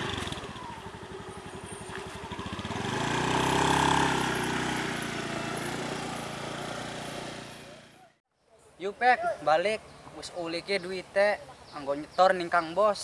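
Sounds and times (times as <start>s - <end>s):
scooter engine revving: 0.0s - 8.2s.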